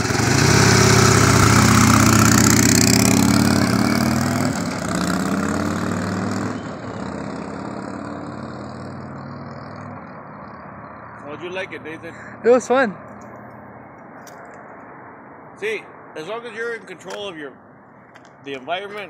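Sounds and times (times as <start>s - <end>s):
motorcycle engine accelerating: 0.0s - 10.6s.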